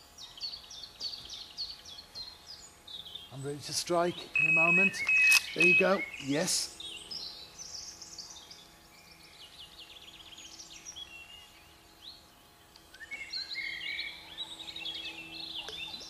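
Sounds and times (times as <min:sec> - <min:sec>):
songbirds chirping and trilling: 0:00.0 - 0:16.0.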